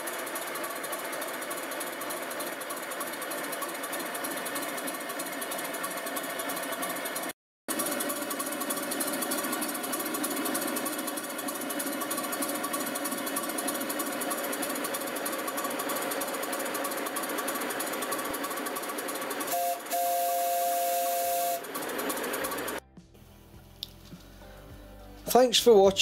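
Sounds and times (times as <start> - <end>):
steam locomotive chuffing: 0.0 - 22.8
two-note steam whistle: 19.5 - 21.8.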